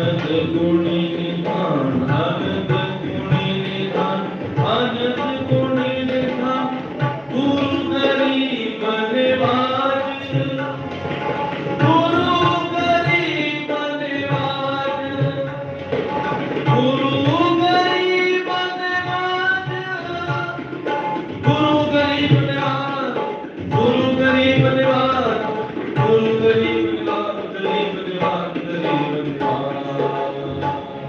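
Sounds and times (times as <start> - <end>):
harmonium chords: 0.0 - 31.0
tabla rhythm: 0.0 - 31.0.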